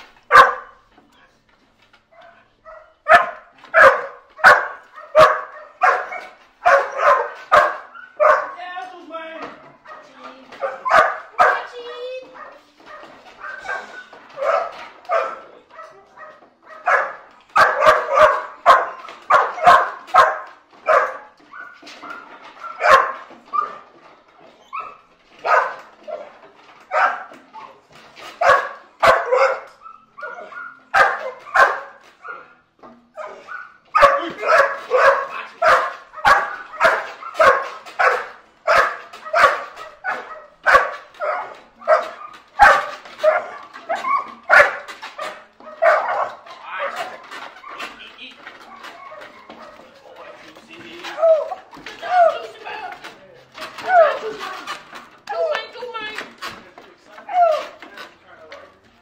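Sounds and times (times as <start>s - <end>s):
dog barking: 0.3s - 0.8s, 2.1s - 8.6s, 9.8s - 23.9s, 24.7s - 26.3s, 26.9s - 27.4s, 28.4s - 47.9s, 48.6s - 50.5s.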